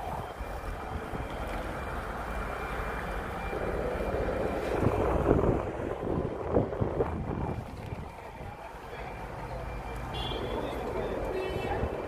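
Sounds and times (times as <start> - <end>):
wind buffeting microphone: 0.0 - 9.0.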